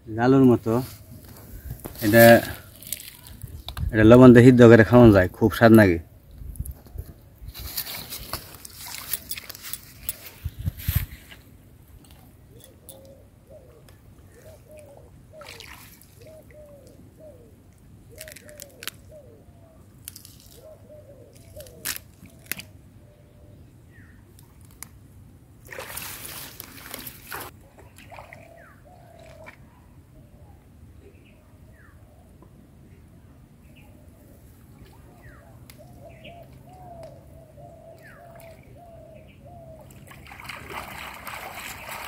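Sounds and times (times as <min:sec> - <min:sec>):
water sloshing and splashing: 0:07.5 - 0:10.6, 0:15.4 - 0:16.5, 0:25.6 - 0:29.6, 0:39.9 - 0:42.0.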